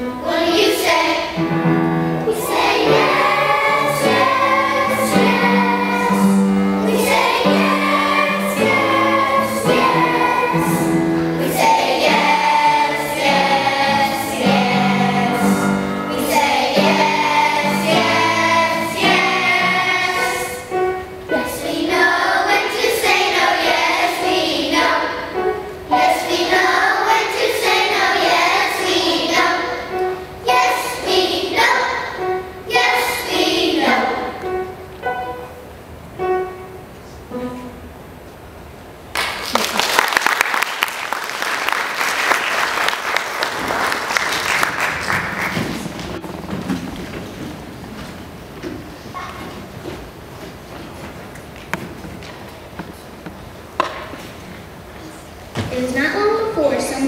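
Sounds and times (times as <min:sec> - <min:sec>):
children's choir singing: 0:00.0 - 0:36.5.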